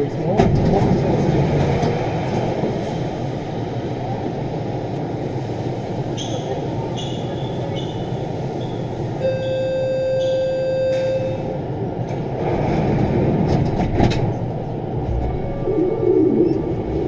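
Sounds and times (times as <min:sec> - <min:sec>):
steady warning tone: 0:09.2 - 0:11.5, 0:15.0 - 0:17.0
train equipment humming: 0:13.5 - 0:17.0.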